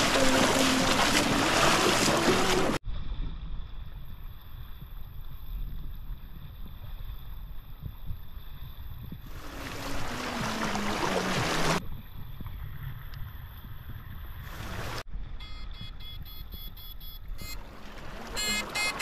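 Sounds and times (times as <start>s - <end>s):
water splashing around wading legs: 0.0s - 2.8s, 9.3s - 11.8s.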